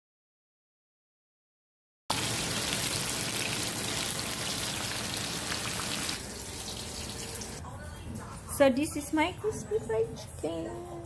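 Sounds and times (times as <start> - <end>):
chicken sizzling in hot oil: 2.1 - 7.6.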